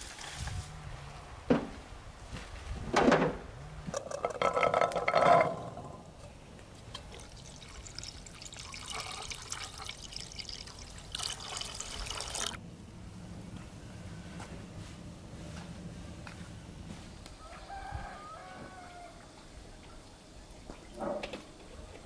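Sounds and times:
water pouring and splashing: 0.0 - 0.6, 6.8 - 12.6.

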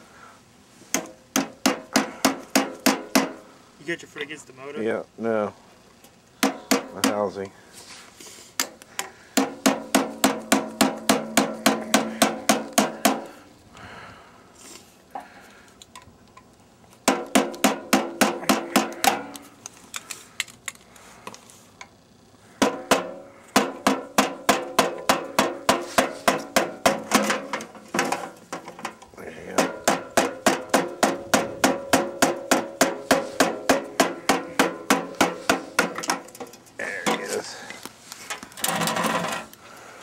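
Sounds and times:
hammer blows on metal: 0.9 - 3.5, 9.3 - 13.4, 17.1 - 19.4, 22.6 - 28.3, 29.4 - 36.3.

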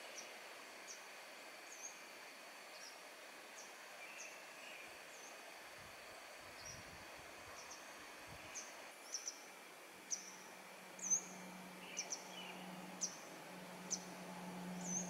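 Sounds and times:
steady hiss: 0.0 - 15.0
birds chirping: 11.0 - 15.0.

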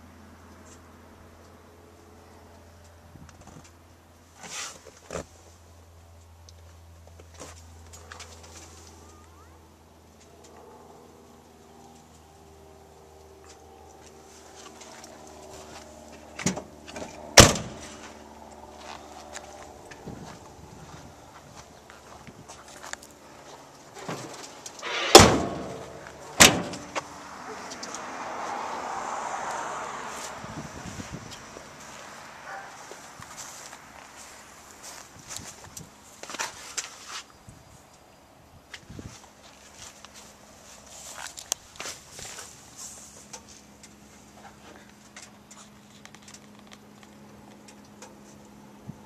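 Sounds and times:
low hum: 10.2 - 30.9
car hood slamming shut: 17.4 - 17.8, 24.8 - 27.0.

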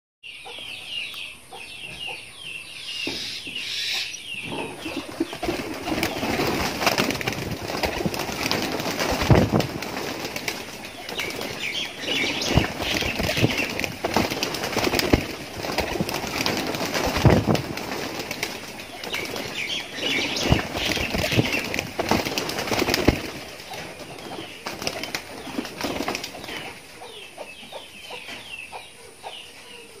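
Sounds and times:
pigeons flapping wings: 4.9 - 26.8.

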